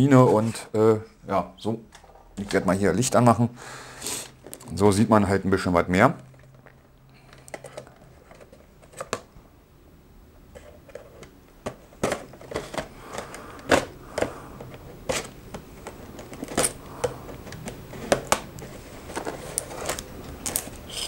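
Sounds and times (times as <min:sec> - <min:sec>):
box being handled: 0:07.3 - 0:09.3, 0:10.6 - 0:20.9.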